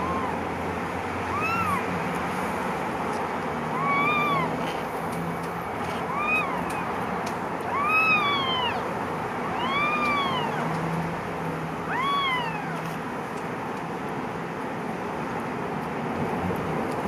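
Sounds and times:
kitten meowing: 0.0s - 0.4s, 1.3s - 1.9s, 3.7s - 4.7s, 6.0s - 6.9s, 7.6s - 10.8s, 11.8s - 12.9s
steady background noise: 0.0s - 17.0s.

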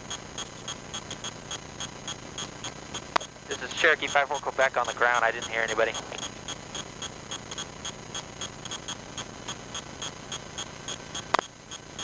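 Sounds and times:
fast steady ticking: 0.0s - 12.0s
faint low hum: 3.2s - 6.8s.

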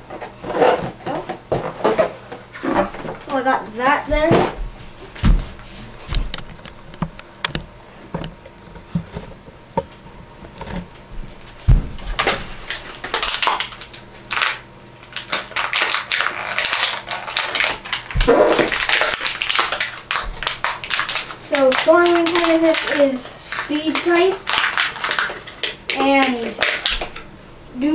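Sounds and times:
heavy thump: 11.2s - 12.1s
plastic bag crinkling: 12.2s - 27.2s.

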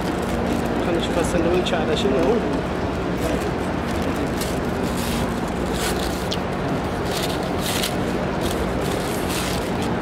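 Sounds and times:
hall background rumble: 0.0s - 10.0s
paper wrapper rustling: 3.2s - 10.0s.

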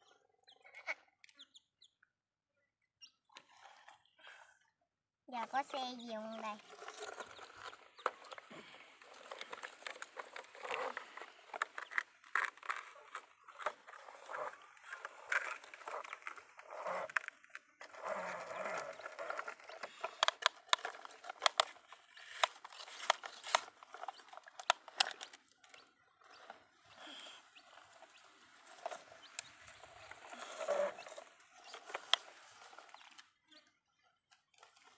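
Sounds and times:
toys scraping in wet dirt: 5.3s - 34.9s
plastic clicks and knocks: 20.0s - 25.8s.

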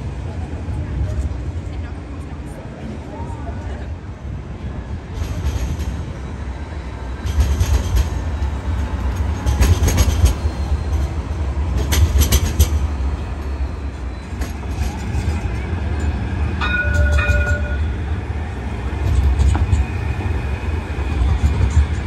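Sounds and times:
tram rumbling past: 0.0s - 22.0s
wheels clacking on rails: 5.1s - 22.0s.

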